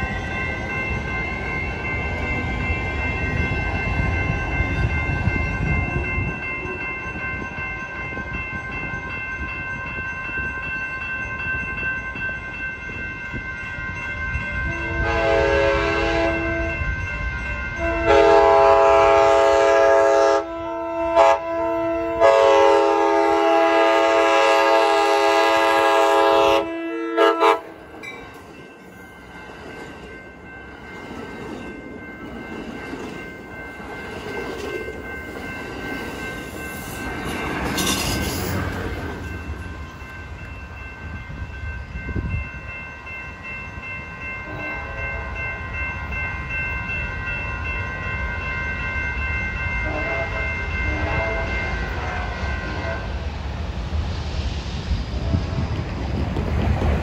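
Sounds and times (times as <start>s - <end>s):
train wheels rumbling on rails: 0.0s - 57.0s
train horn blasts: 14.7s - 16.9s, 17.8s - 27.9s, 44.4s - 45.4s, 49.8s - 53.2s.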